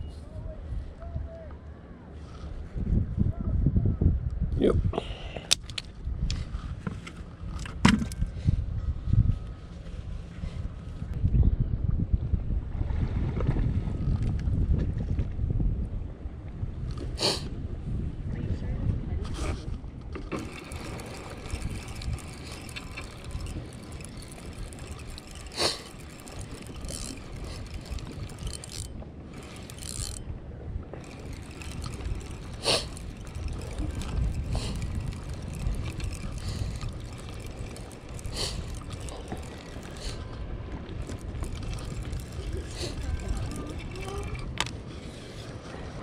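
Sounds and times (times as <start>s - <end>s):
wind rumble on microphone: 0.0s - 46.0s
fishing reel whirring and ticking: 20.3s - 44.7s.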